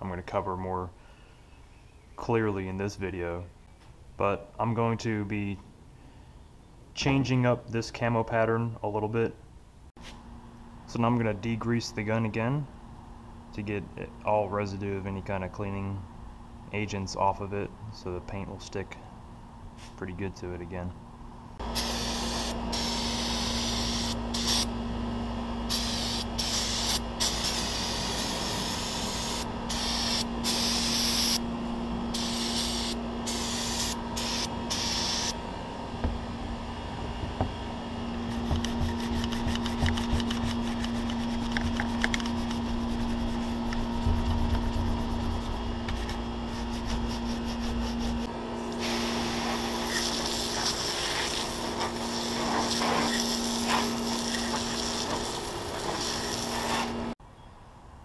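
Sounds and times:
steady low hum: 0.0s - 57.2s
aerosol spray hissing bursts: 21.8s - 24.7s, 25.7s - 31.4s, 32.2s - 35.4s, 46.5s - 57.0s
hose nozzle spraying water: 48.8s - 57.0s.

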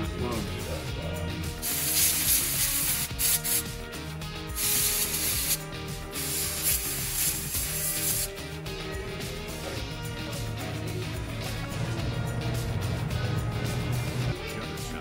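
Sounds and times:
background music: 0.0s - 15.0s
pressurised spray hissing: 1.6s - 3.7s, 4.6s - 8.3s.

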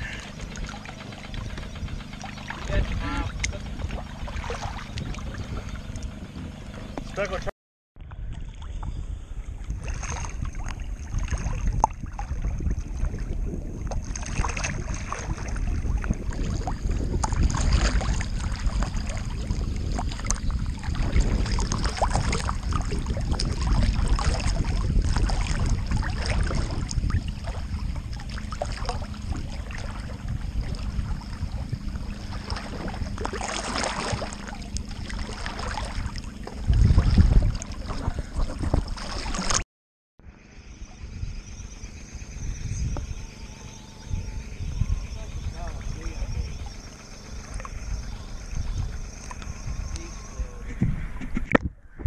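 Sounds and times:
water sloshing and splashing: 0.0s - 39.6s, 45.1s - 51.8s
wind buffeting microphone: 0.0s - 39.6s, 40.7s - 52.0s
heavy water splash: 2.1s - 5.7s, 9.8s - 39.6s.

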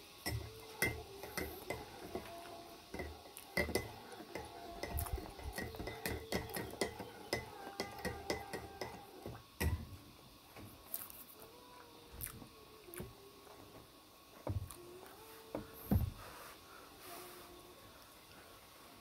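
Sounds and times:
spoon clinking in a ceramic mug: 0.2s - 2.3s, 2.9s - 9.8s.

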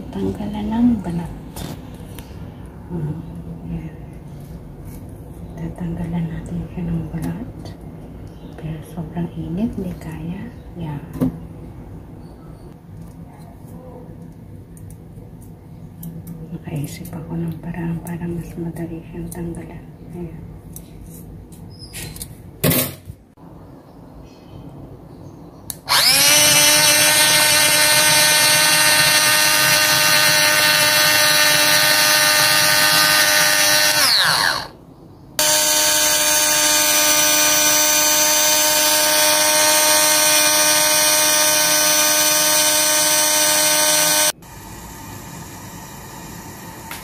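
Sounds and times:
food chopper motor whining: 25.7s - 34.8s, 35.4s - 47.0s.

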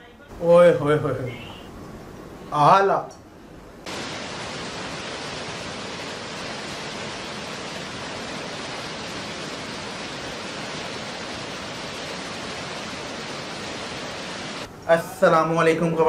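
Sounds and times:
river water rushing over rapids: 3.9s - 14.7s.

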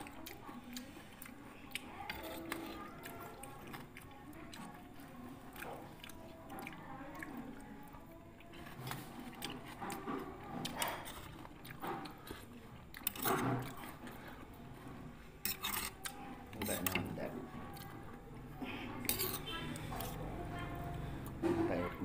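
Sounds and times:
person chewing fruit: 0.0s - 21.4s
metal spoon clinking on bowl: 19.1s - 20.2s.

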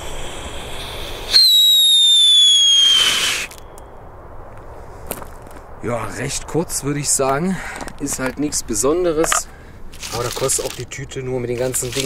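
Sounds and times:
whistling rocket falling whistle: 0.0s - 3.9s
firework hiss: 0.0s - 7.2s.

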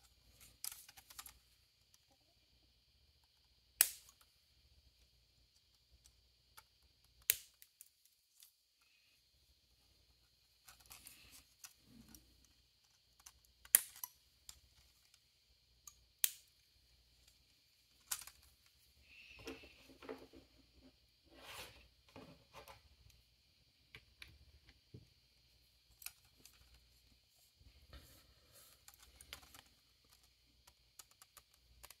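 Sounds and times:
plastic clicks and snaps: 3.2s - 4.3s, 5.6s - 7.9s, 12.9s - 15.2s, 15.9s - 16.6s, 28.8s - 32.0s.

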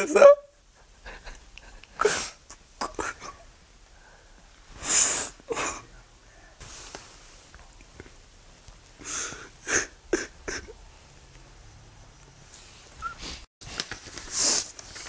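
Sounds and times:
man sobbing and sniffling: 0.8s - 3.4s, 4.8s - 6.0s, 9.0s - 10.8s.

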